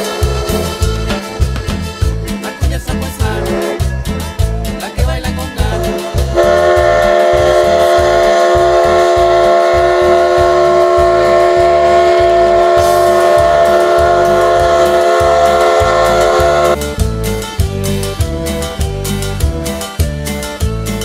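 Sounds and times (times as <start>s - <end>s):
train whistle blast: 0.0s - 1.9s, 3.4s - 3.9s, 5.8s - 16.8s
rhythmic low pulsing: 0.0s - 21.0s.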